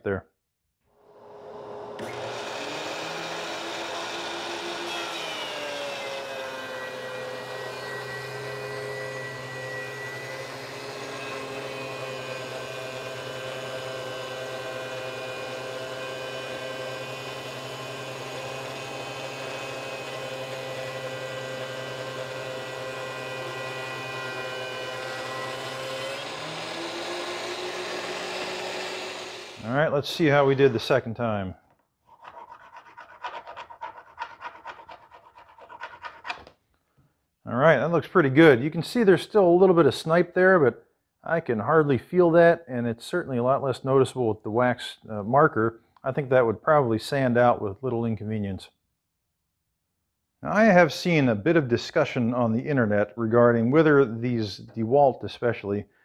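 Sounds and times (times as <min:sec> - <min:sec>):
thickness planer planing a board: 0:01.3 - 0:29.7, 0:32.1 - 0:36.5.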